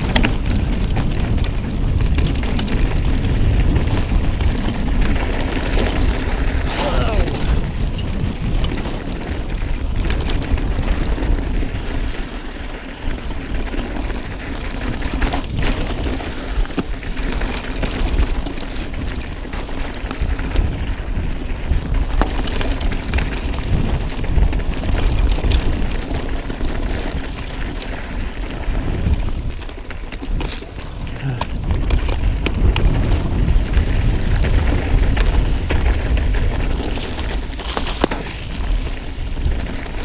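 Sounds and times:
bike clicks and rattles: 0.0 - 40.0
bike rumbling over rough trail: 0.0 - 40.0
wind buffeting microphone: 0.0 - 40.0.

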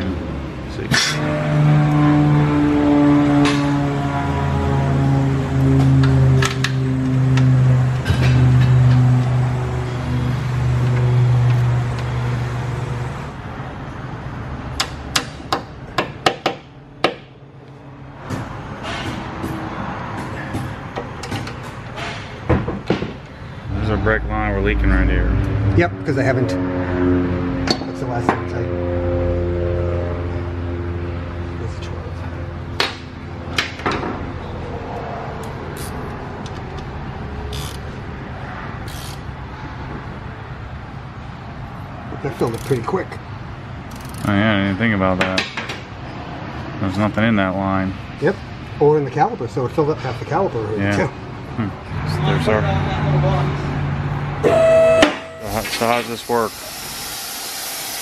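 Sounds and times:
low hum: 23.4 - 27.7
wrench metal clicks: 38.8 - 39.3, 43.9 - 44.3.

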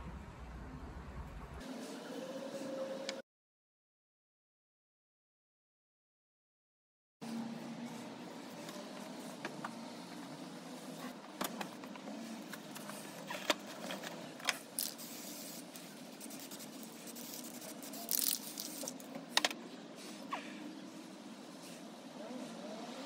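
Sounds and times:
spray paint can hissing: 14.6 - 19.1.

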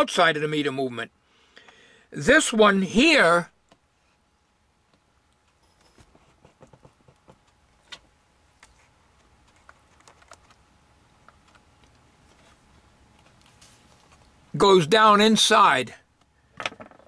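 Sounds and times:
faint handling clicks and taps: 4.9 - 10.6, 11.2 - 14.4.

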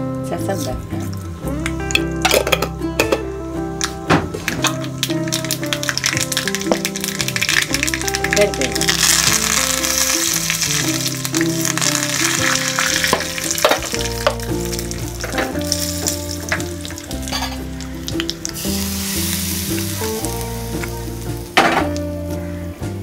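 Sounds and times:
background music: 0.0 - 23.0
oil popping and spluttering: 3.8 - 22.1
chillies sizzling in hot oil: 4.4 - 22.5.

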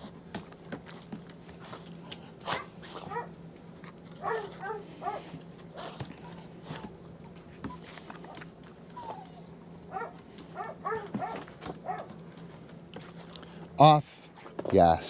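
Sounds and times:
dog whining: 2.4 - 12.1
dog whimpering: 4.2 - 12.0.

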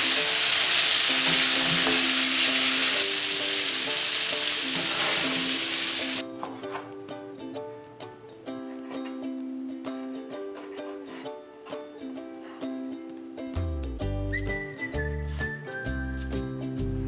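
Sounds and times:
steak sizzling in oil: 0.0 - 6.2
plucked ukulele music: 0.0 - 17.0.

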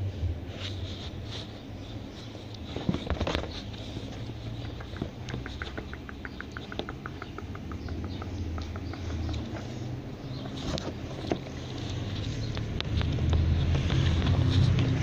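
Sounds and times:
fur rubbing against microphone: 0.4 - 5.1.

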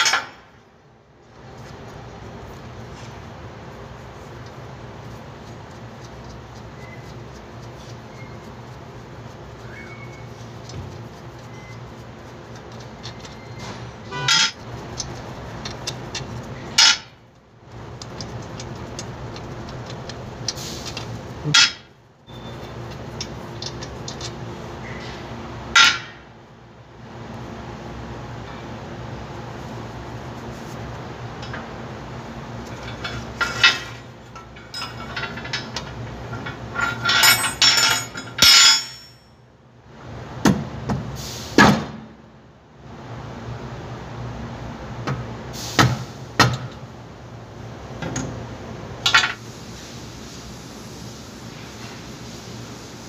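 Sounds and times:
metal tools clinking: 0.0 - 0.5, 12.8 - 17.1, 20.9 - 24.4, 32.6 - 39.3.

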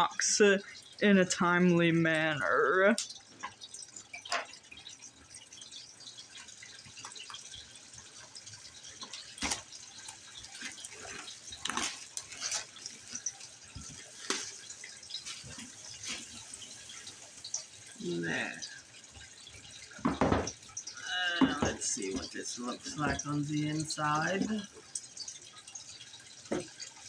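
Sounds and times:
plastic shrink-wrap crinkling and tearing: 9.2 - 16.5.

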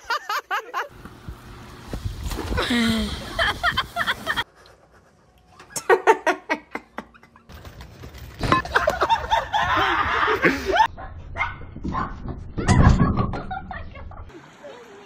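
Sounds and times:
people laughing: 0.0 - 0.9, 2.6 - 4.4, 8.4 - 10.9.

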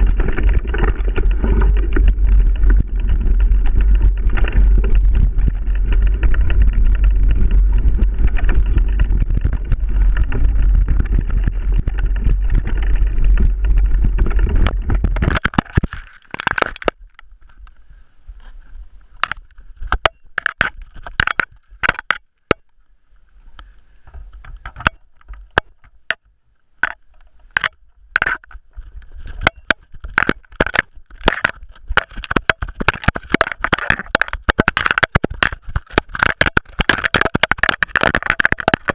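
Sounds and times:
wind buffeting: 0.0 - 15.4
camera handling knocks and rattles: 0.0 - 17.6, 19.2 - 22.7, 24.1 - 28.7, 29.3 - 38.9
bike trail rumble: 0.0 - 38.9.

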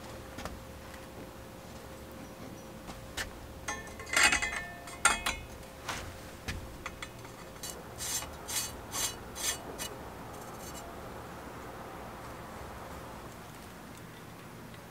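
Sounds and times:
metal parts clicking and clattering: 3.6 - 5.6, 6.6 - 10.9
short scraping rubs: 5.8 - 10.9.

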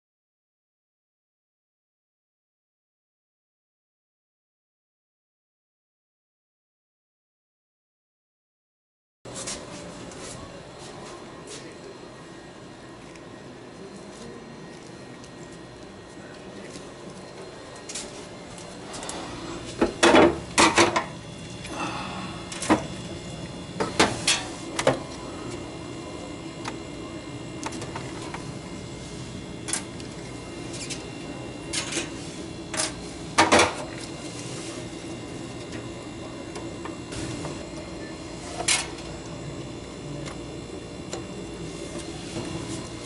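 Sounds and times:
steady low hum: 9.3 - 43.0.

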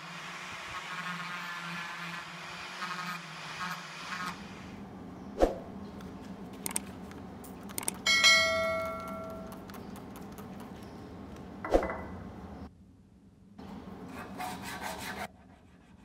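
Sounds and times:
small clicks: 6.0 - 8.0
bell ding notification: 8.1 - 9.4.

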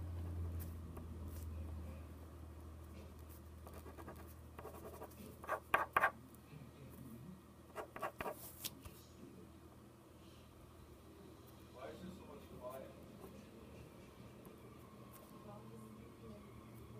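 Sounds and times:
faint low hum: 0.0 - 16.9
pencil scratching on paper: 3.1 - 6.2, 7.8 - 8.6.

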